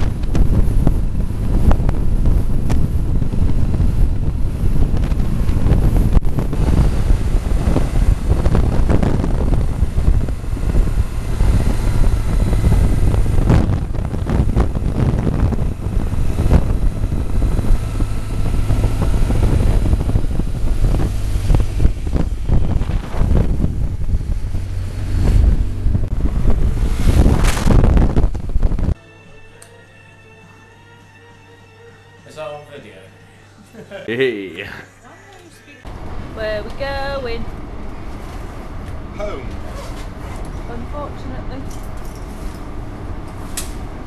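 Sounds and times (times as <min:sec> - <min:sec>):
motorcycle running at road speed: 0:00.0 - 0:29.0
wind buffeting microphone: 0:00.0 - 0:29.0, 0:35.8 - 0:44.0.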